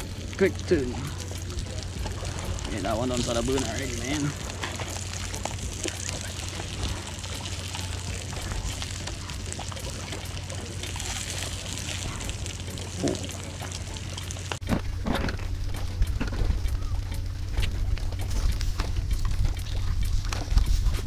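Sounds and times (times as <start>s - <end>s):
fish sizzling in hot oil: 0.0s - 14.7s
oil spitting crackles: 0.0s - 21.0s.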